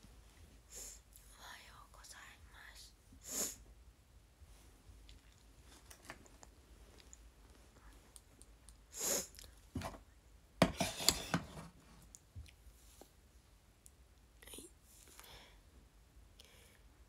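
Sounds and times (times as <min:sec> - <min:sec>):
breathy hiss: 0:03.2 - 0:03.6, 0:08.9 - 0:09.4
rustling and clicking handling noise: 0:05.0 - 0:08.8.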